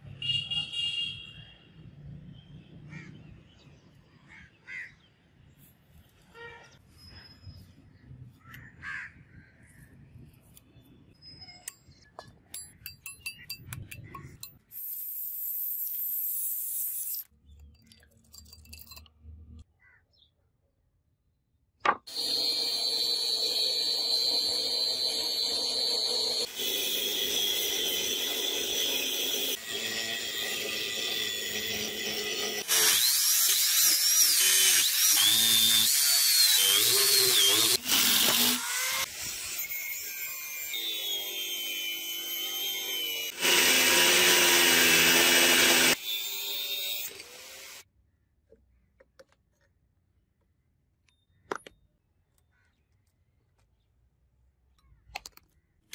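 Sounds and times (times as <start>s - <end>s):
angle grinder cutting steel: 22.1s - 47.8s.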